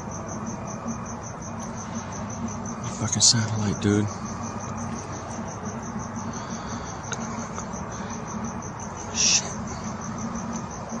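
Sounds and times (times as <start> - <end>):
crickets chirping: 0.0 - 11.0
low steady hum: 0.0 - 11.0.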